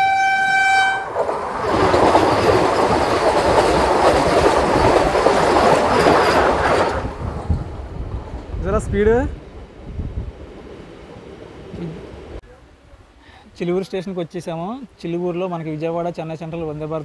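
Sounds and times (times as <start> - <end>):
train horn: 0.0 - 1.1
train passing at high speed: 0.0 - 12.4.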